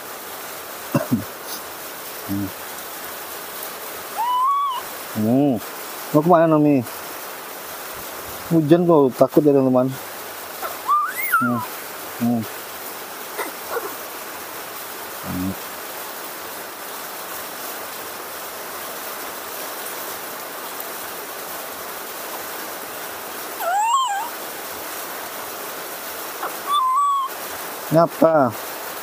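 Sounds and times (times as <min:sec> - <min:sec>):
heavy rain through trees: 0:00.0 - 0:29.0
baby monkey high call: 0:04.1 - 0:04.9, 0:10.6 - 0:11.8, 0:13.4 - 0:14.0, 0:23.6 - 0:24.4, 0:26.4 - 0:27.4.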